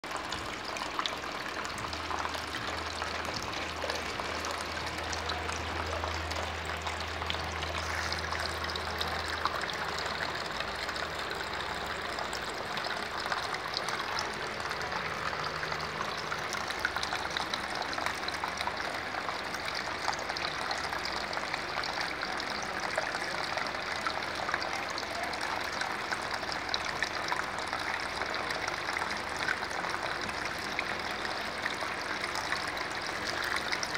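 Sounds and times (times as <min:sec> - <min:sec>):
water swirling and splashing: 0:00.1 - 0:12.0.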